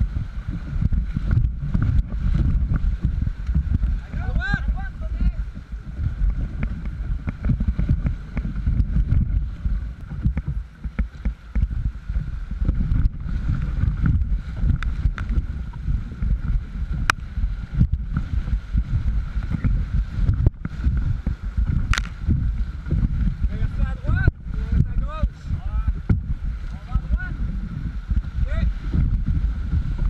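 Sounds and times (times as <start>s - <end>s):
low rumble on microphone: 0.0s - 30.0s.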